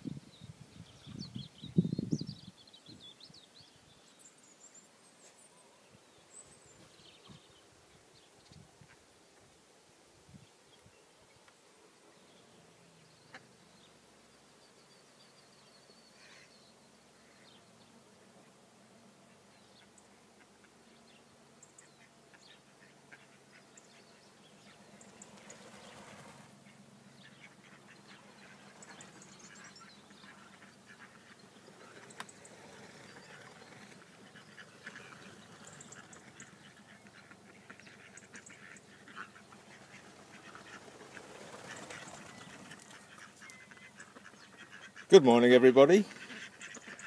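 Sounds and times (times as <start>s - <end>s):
ducks quacking: 21.8s - 47.0s.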